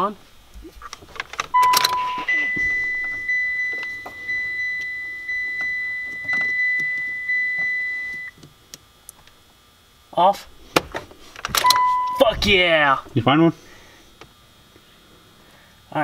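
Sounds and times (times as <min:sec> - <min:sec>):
clicks of handling wires: 0:00.8 - 0:02.0
electronic beeps: 0:01.5 - 0:08.4, 0:11.6 - 0:12.4.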